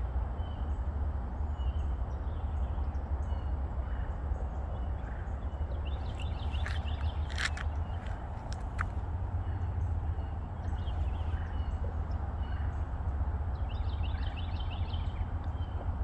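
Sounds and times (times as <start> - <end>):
steady low rumble: 0.0 - 16.0
birds chirping: 1.6 - 16.0.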